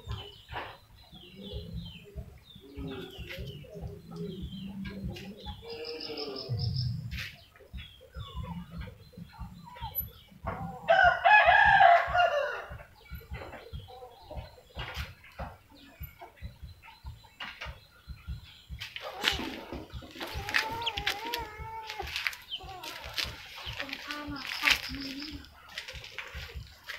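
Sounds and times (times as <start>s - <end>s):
chickens clucking: 0.0s - 26.9s
rooster crowing: 10.9s - 12.8s.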